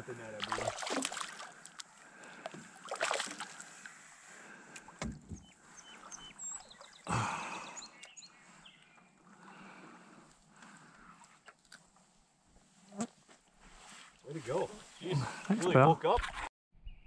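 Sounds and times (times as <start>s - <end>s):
fish splashing: 0.4s - 3.9s
water sloshing: 0.4s - 4.0s.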